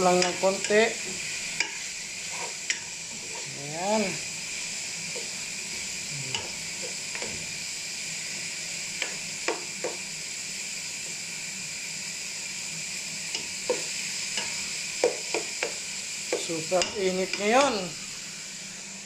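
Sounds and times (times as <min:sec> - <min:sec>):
meat sizzling in a pot: 0:00.0 - 0:19.0.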